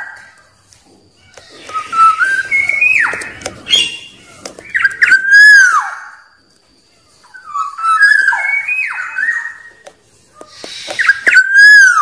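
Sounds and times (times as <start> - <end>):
bird singing fluty whistles: 1.5 - 6.4, 7.2 - 9.8, 10.5 - 12.0.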